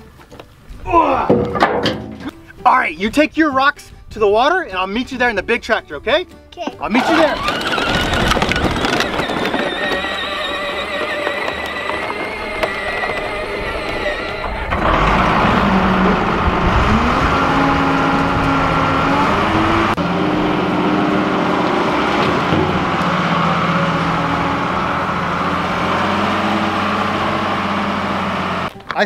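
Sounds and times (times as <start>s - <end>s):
wheel loader diesel engine running: 6.9s - 28.7s.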